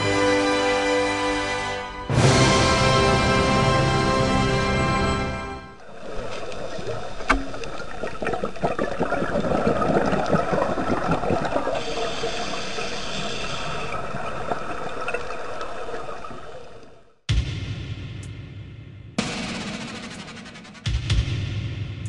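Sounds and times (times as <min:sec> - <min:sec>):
bubbles gurgling: 0:05.8 - 0:17.0
scuba regulator breathing underwater: 0:08.6 - 0:14.7.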